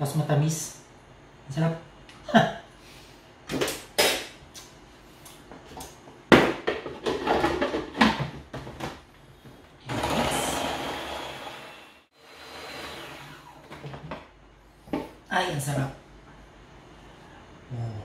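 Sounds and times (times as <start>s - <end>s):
food processor motor whining: 9.8s - 13.8s.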